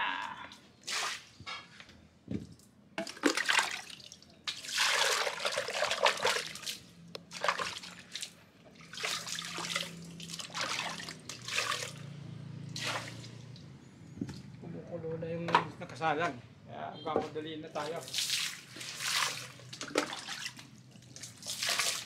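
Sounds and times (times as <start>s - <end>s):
water splashing and sloshing: 0.8s - 1.7s, 2.4s - 14.5s, 17.8s - 22.0s.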